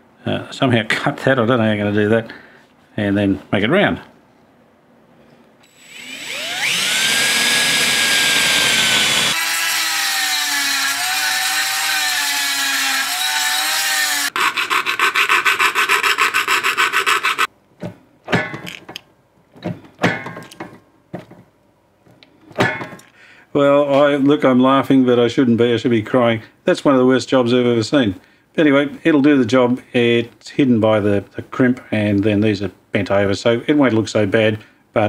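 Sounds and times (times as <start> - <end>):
rotary tool whining: 5.6 - 14.6
hand file strokes on metal: 10.8 - 17.5
fast even rasping: 14.2 - 17.5.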